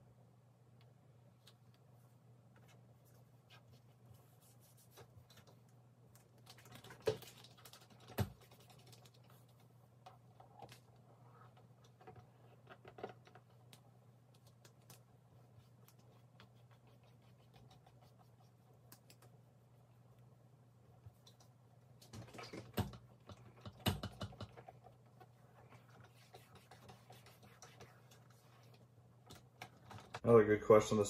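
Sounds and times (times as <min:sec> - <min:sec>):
low steady hum: 0:00.0 - 0:31.0
fingers scratching and tapping plastic: 0:06.2 - 0:10.8.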